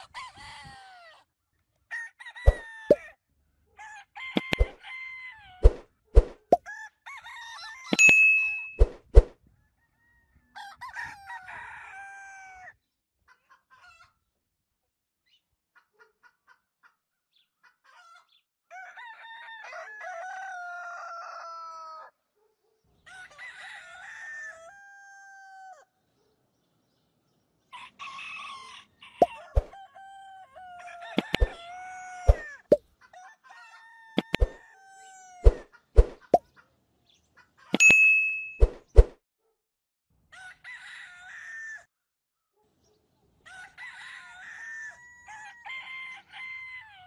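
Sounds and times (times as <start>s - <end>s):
rooster crowing: 1.9s - 3.2s, 3.8s - 5.7s, 6.6s - 8.0s, 9.6s - 12.8s, 18.7s - 22.1s, 23.0s - 25.9s, 27.7s - 35.6s, 40.3s - 41.9s, 43.4s - 47.0s
sharp clicks: 4.4s - 4.8s
bell-like ding: 8.0s - 8.9s, 37.8s - 38.6s.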